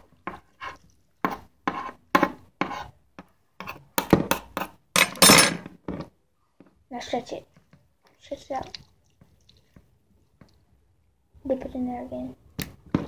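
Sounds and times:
slime squelching in hands: 0:08.0 - 0:10.8.

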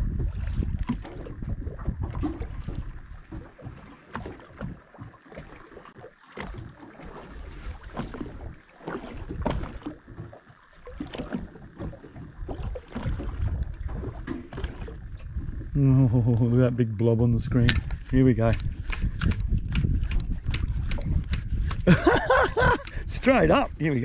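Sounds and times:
wind on microphone: 0:00.0 - 0:03.8, 0:11.0 - 0:24.0
water slapping against boat hull: 0:00.0 - 0:15.8, 0:17.5 - 0:24.0.

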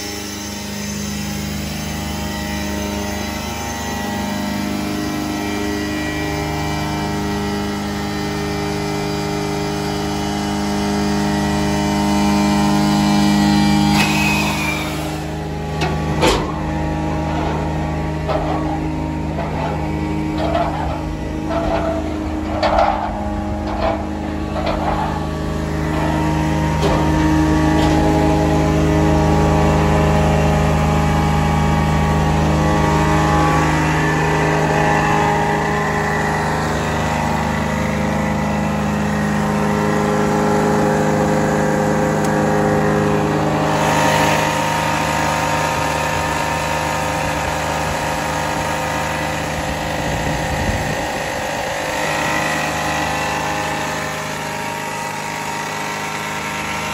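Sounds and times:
diesel engine running: 0:00.0 - 0:56.9.

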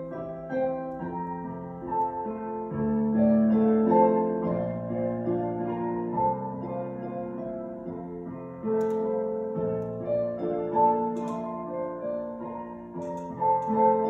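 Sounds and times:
solo piano chords: 0:00.0 - 0:14.0.

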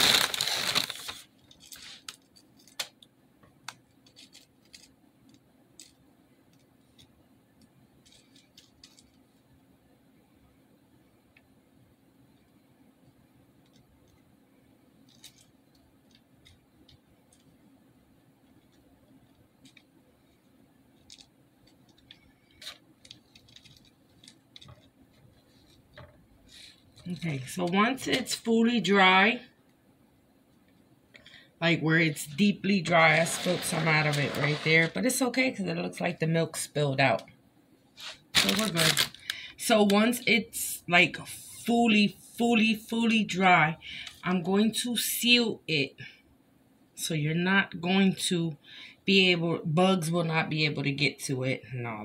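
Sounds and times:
dry cereal clicking and rustling: 0:00.0 - 0:03.0, 0:03.7 - 0:06.0, 0:08.0 - 0:09.2, 0:15.1 - 0:16.6, 0:21.0 - 0:27.2, 0:38.4 - 0:39.4.

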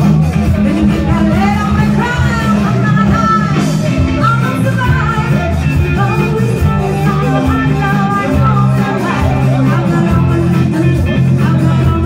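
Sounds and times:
bass guitar: 0:00.0 - 0:12.0
electric guitar: 0:00.0 - 0:12.0
steady drum beat: 0:00.0 - 0:12.0
woman singing: 0:00.6 - 0:12.0.

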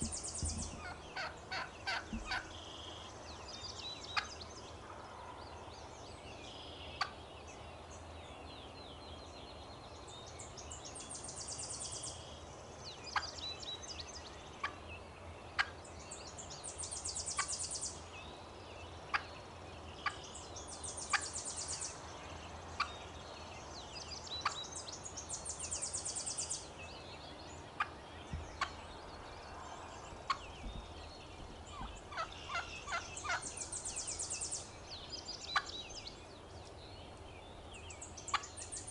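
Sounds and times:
small bird chirps: 0:00.0 - 0:04.4
turkey clucking: 0:00.1 - 0:02.6, 0:27.8 - 0:28.0, 0:28.6 - 0:28.8, 0:30.2 - 0:30.5, 0:31.7 - 0:34.2, 0:38.3 - 0:38.5.

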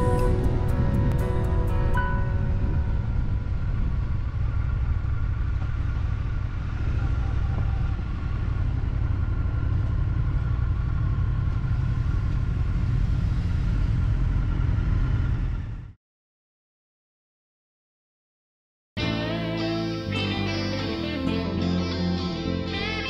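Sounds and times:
motorcycle engine rumbling: 0:00.0 - 0:16.0.

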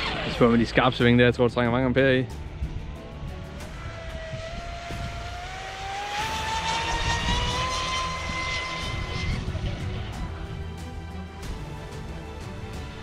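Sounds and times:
electric motor and propeller whining: 0:00.0 - 0:00.7, 0:02.7 - 0:13.0.

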